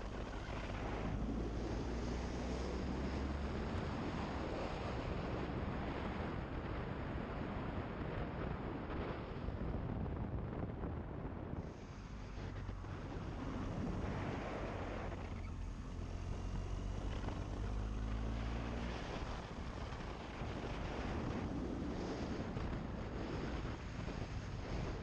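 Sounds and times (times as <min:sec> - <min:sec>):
wind rush on microphone: 0:00.0 - 0:25.0
motorcycle engine running: 0:11.9 - 0:25.0.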